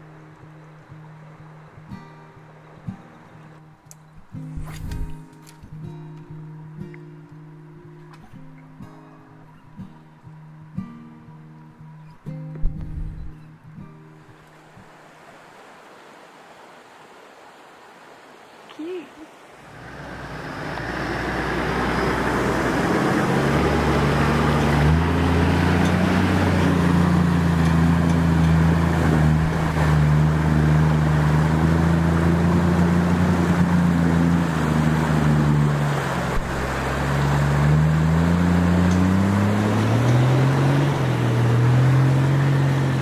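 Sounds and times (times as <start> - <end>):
water splashing around wheels: 19.3 - 43.0
car engine pulling: 19.7 - 43.0.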